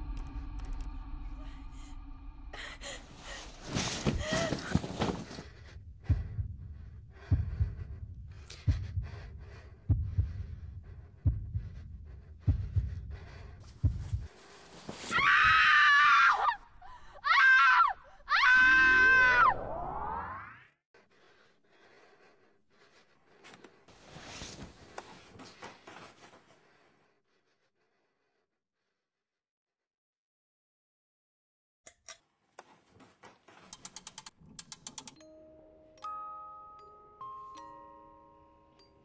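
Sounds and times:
slow low heartbeat thuds: 3.1 - 14.5
woman screaming: 15.1 - 16.6, 17.2 - 19.6.

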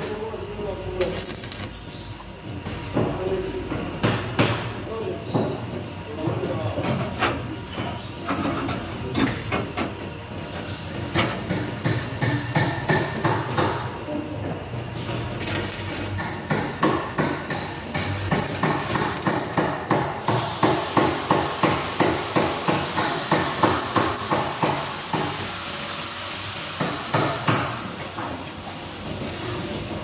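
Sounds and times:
arc welding crackle: 0.5 - 2.1, 15.2 - 30.0.

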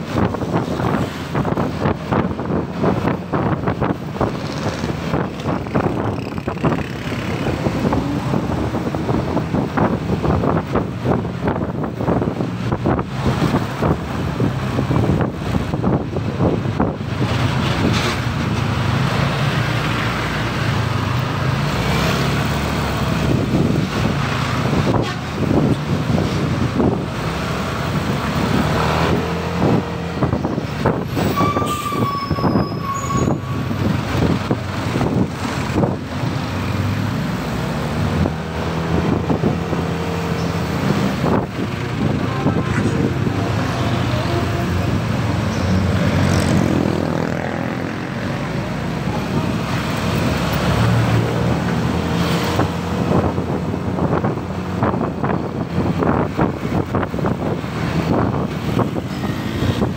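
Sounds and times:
heavy traffic noise: 0.0 - 59.9
vehicle horn: 42.2 - 43.0.

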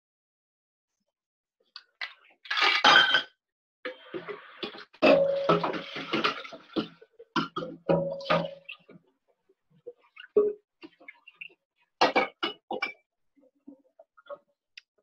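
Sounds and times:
bar tools and glassware clinking: 5.0 - 6.9, 7.5 - 8.7.

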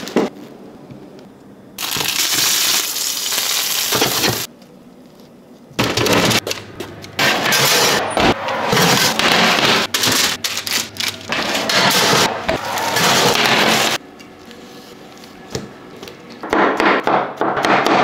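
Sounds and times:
loud crackling and crinkling: 1.8 - 5.8, 8.9 - 14.0.

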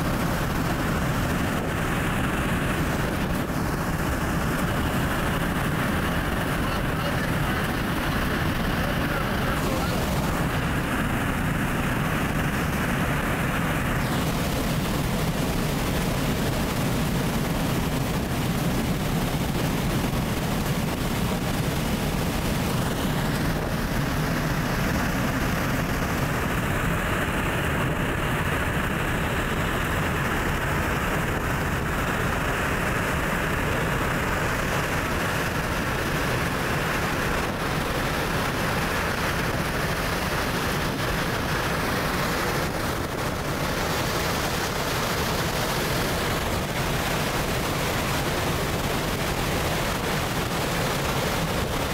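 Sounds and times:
jet engines roaring: 0.0 - 51.9
rushing wind: 0.0 - 51.9.

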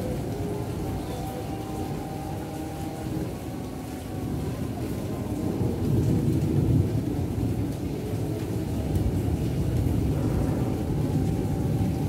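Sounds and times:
distant thunder rumble: 4.1 - 12.0.

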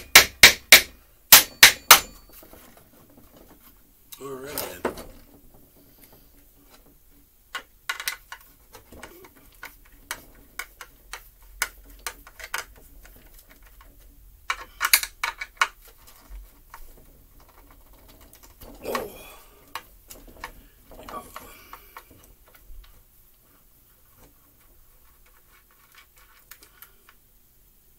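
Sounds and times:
screwdriver scraping plastic: 7.9 - 18.8, 24.2 - 27.2.

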